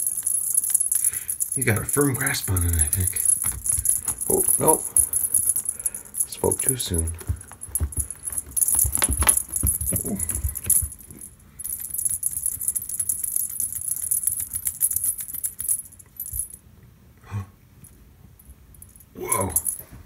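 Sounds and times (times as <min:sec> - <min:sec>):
cat toy jingling and rattling: 0:00.0 - 0:16.6
soft low thumps: 0:03.2 - 0:05.6, 0:06.2 - 0:11.3.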